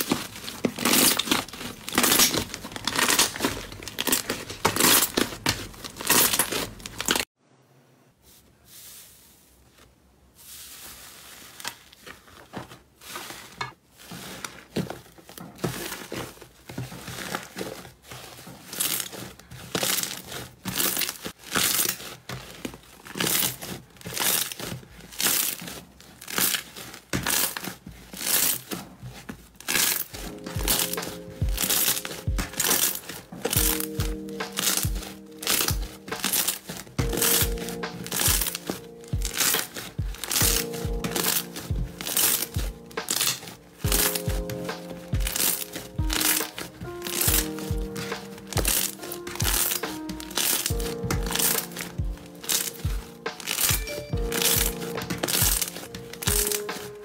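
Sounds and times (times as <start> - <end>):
slime crackling and popping: 0.0 - 7.3, 15.6 - 57.0
slime being squeezed: 29.6 - 56.9.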